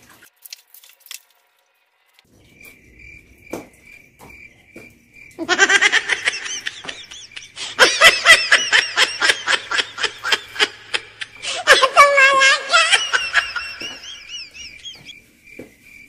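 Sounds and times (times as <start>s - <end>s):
loud laughter in bursts: 5.4s - 15.1s
faint chirping: 12.5s - 16.0s.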